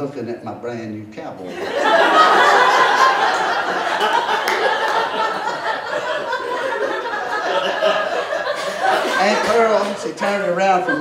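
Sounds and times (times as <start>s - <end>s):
audience laughing loudly: 1.5s - 11.0s.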